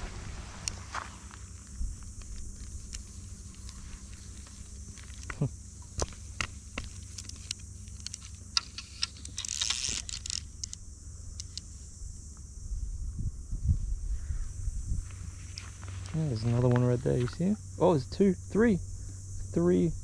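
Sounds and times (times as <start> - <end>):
sharp clicks: 4.4 - 11.7
wind rumble on microphone: 11.9 - 16.0.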